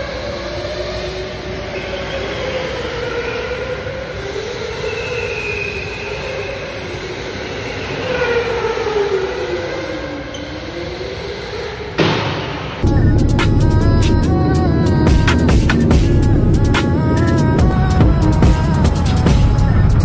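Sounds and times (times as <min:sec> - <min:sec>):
electric go-kart motors whining: 0:00.0 - 0:12.0
noisy hall background: 0:00.0 - 0:20.0.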